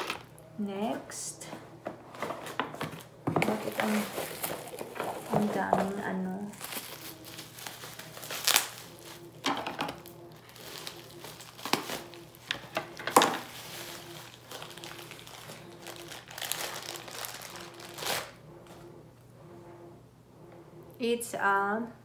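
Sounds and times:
plastic wrapping crinkling: 0.0 - 0.4, 2.1 - 18.4.

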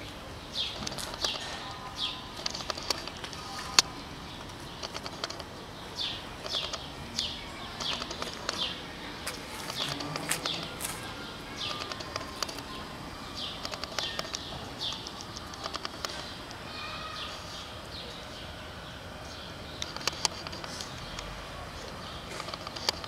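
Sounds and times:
small bird chirping: 0.5 - 8.8, 9.6 - 18.2.

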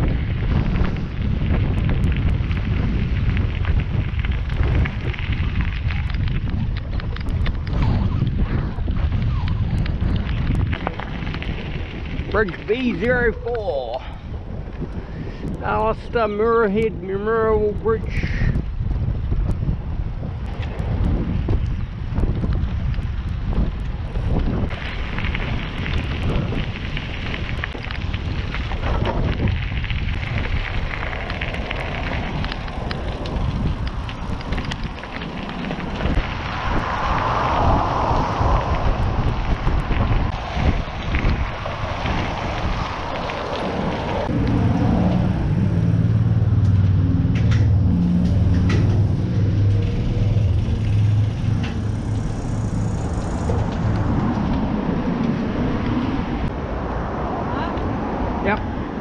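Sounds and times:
bicycle tyres on gravel: 0.0 - 56.6
wind buffeting microphone: 0.0 - 59.0
road traffic rumbling: 19.8 - 59.0
low tones booming in underpass: 44.2 - 56.4.

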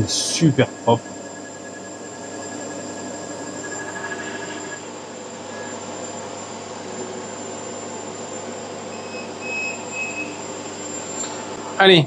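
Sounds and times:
thin high tone: 0.0 - 4.9
laser engraver motors humming: 0.0 - 11.6.

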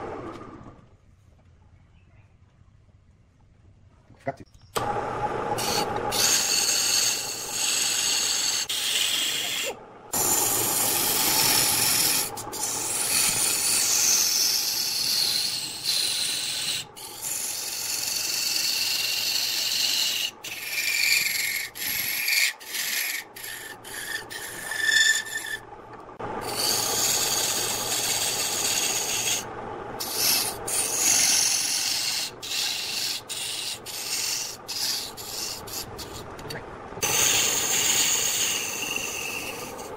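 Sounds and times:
gouge cutting wood on a lathe: 4.8 - 39.9.

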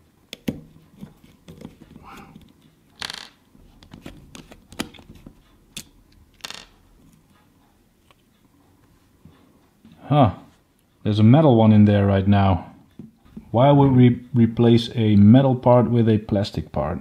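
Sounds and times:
screws clinking on wooden table: 6.4 - 6.8.

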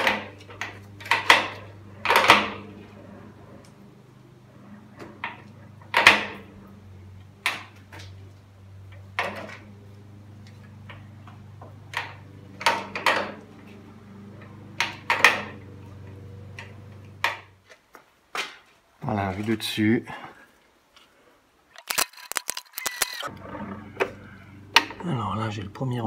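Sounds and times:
low machine hum: 0.0 - 17.6, 23.0 - 26.0.

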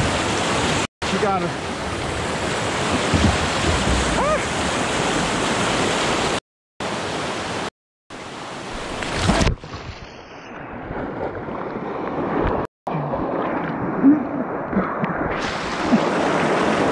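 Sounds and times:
whitewater rapids rushing: 0.1 - 7.5.

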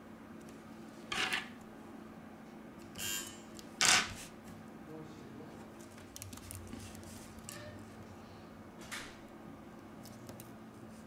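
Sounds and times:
plastic film scratchy rustles: 5.8 - 7.5.

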